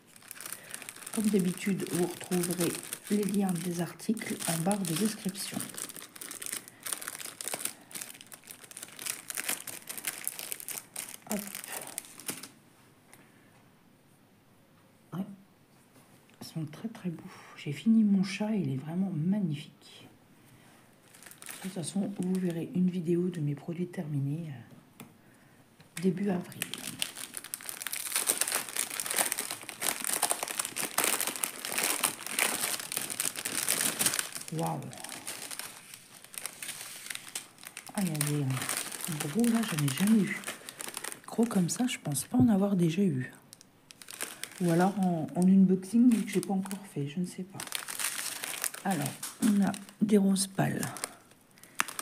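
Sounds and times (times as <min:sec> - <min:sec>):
plastic packaging crinkling: 0:00.0 - 0:12.6, 0:21.0 - 0:22.8, 0:26.0 - 0:52.0.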